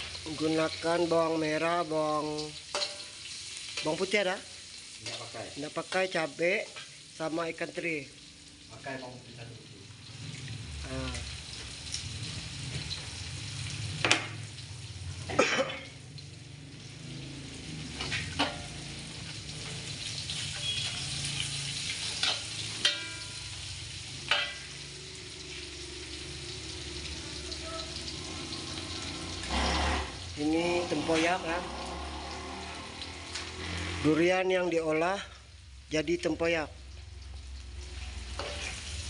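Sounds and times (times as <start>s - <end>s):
food sizzling in oil: 0.0s - 39.0s
metal spatula scraping a wok: 2.6s - 4.0s, 20.0s - 23.7s, 28.4s - 34.2s, 37.9s - 39.0s.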